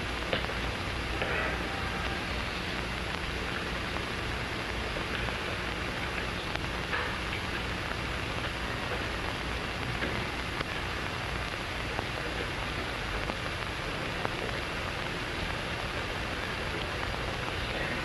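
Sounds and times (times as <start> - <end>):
recording hiss: 0.0 - 18.0.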